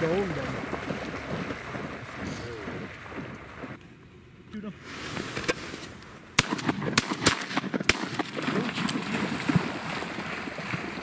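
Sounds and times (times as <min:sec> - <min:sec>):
shotgun shots: 0:06.4 - 0:08.9.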